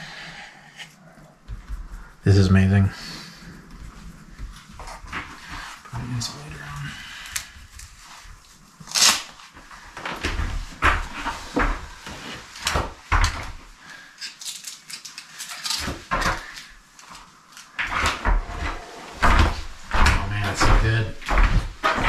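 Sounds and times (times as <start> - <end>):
footsteps on plywood floor: 1.4 - 2.2, 3.6 - 5.7, 18.4 - 22.0
knocks and thumps: 18.0 - 22.0.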